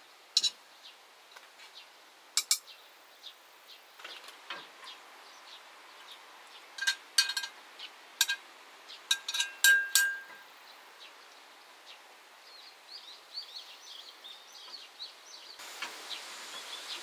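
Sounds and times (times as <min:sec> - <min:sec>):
faint steady hiss: 0:00.0 - 0:17.0
clicks and clinks of hard objects: 0:02.4 - 0:02.6, 0:06.8 - 0:07.6, 0:08.2 - 0:08.4, 0:09.1 - 0:10.5.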